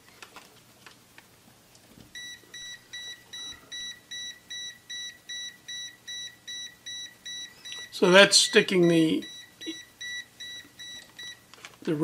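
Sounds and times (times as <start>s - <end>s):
multimeter beeping: 2.2s - 11.4s.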